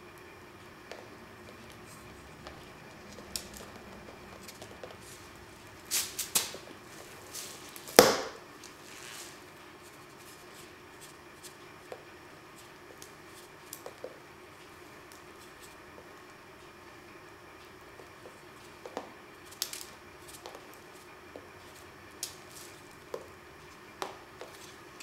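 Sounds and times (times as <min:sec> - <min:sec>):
stick swishing: 0:05.9 - 0:06.6.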